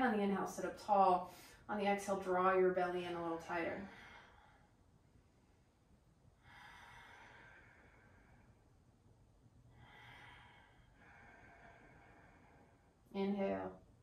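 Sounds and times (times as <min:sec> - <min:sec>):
faint slow breathing: 0:03.8 - 0:13.2.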